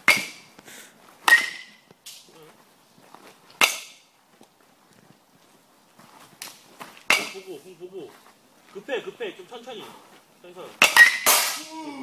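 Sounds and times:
bat cracking against baseball: 0.0s - 0.4s, 10.8s - 11.7s.

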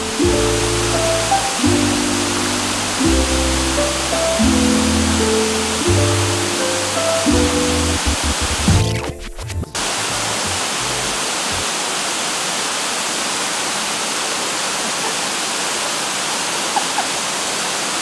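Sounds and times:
background music: 0.0s - 9.8s
waterfall pouring into pool: 9.8s - 18.0s.

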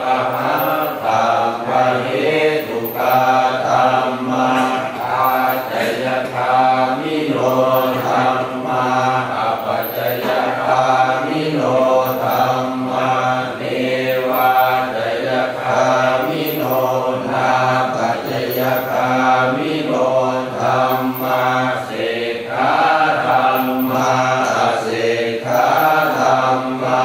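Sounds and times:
voices chanting prayers: 0.0s - 27.0s.

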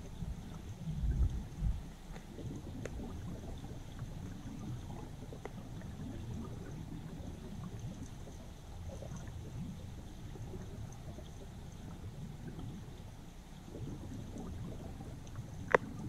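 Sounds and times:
faint clicks: 0.0s - 6.4s, 15.1s - 16.0s
underwater river current rumble: 0.0s - 16.0s.

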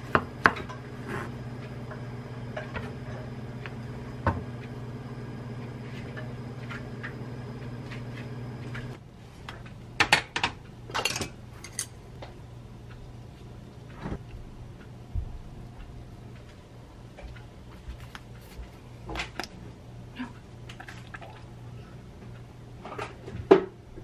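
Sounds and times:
low hum: 0.0s - 9.1s.

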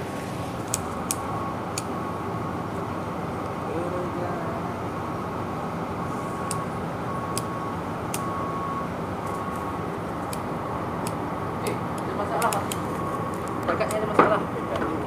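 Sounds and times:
faint high beep: 6.0s - 9.8s.

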